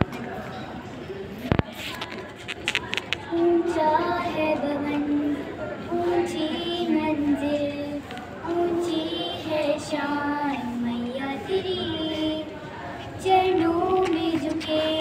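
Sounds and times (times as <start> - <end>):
girls singing together: 3.2 - 15.0.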